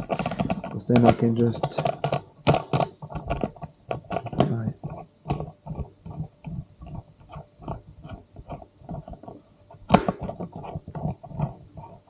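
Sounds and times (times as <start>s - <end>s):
mount parts knocking and clicking: 0.0s - 5.6s.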